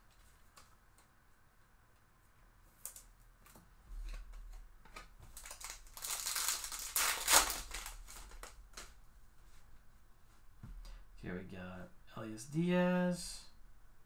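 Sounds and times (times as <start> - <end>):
foil wrapper tearing and crinkling: 5.4 - 8.9.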